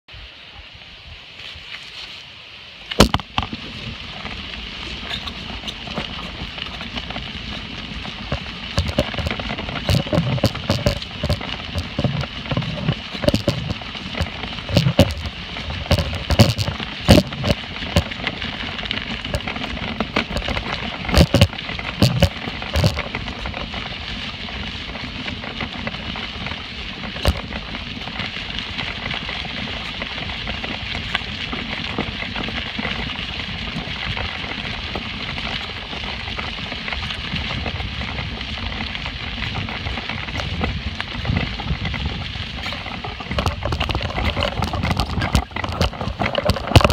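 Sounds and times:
footsteps crunching on gravel: 0:01.4 - 0:46.9
sharp clicks and knocks: 0:02.9 - 0:03.6, 0:04.2 - 0:24.6, 0:25.2 - 0:33.1, 0:38.8 - 0:46.9.

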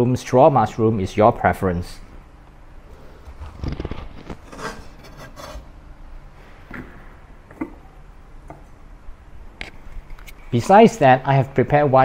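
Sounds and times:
cleaver scraping on cutting board: 0:04.3 - 0:05.7.

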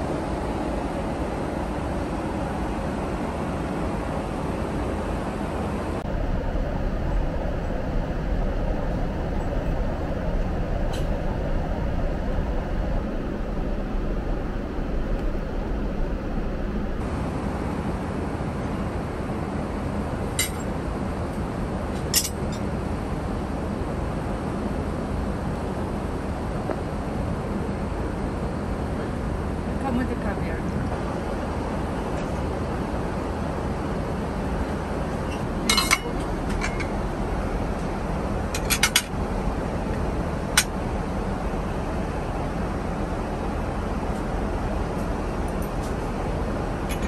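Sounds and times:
airliner cabin rumble and hiss: 0:00.0 - 0:47.0
cutlery and tableware clinks: 0:20.4 - 0:20.7.

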